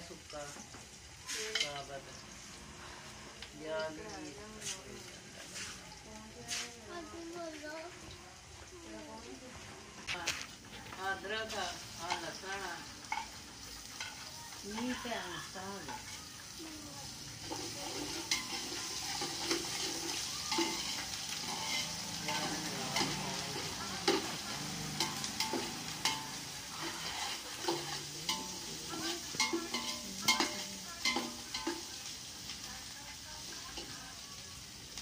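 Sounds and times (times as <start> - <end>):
garlic and ginger sizzling: 0.0 - 35.0
metal spoon clinking against pot: 17.5 - 31.9.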